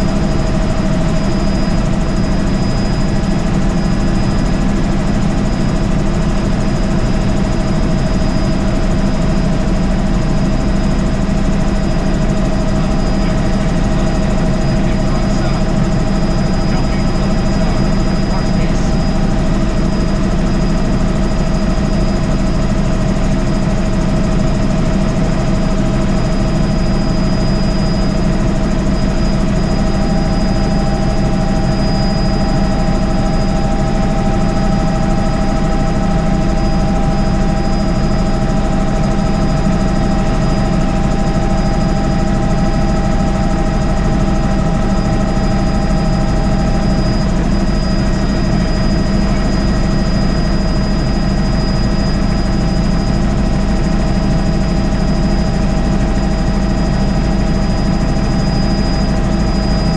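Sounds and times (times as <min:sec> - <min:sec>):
helicopter engine and rotor drone: 0:00.0 - 0:59.9
high whine: 0:00.0 - 0:59.9.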